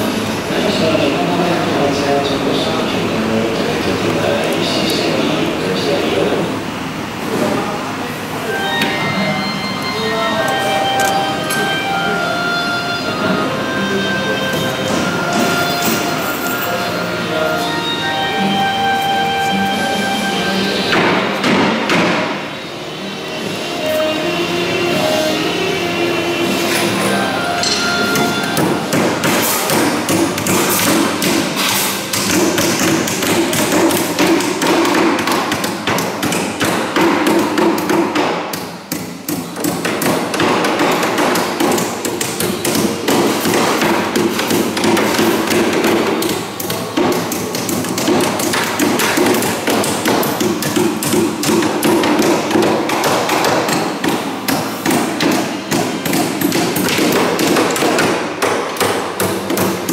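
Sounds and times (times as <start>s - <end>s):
hammers striking timber: 20.9s - 22.3s, 27.6s - 59.9s.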